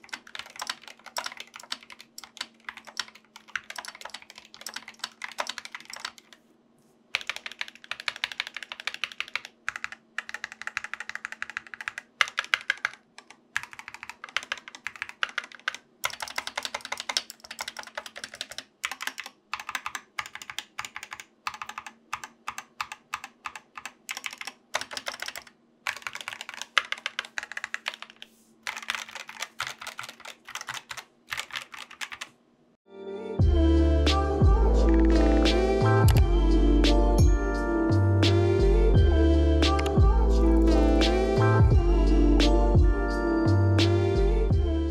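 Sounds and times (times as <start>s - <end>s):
mechanical keyboard typing: 0.0s - 6.4s, 7.1s - 32.4s, 36.0s - 36.2s.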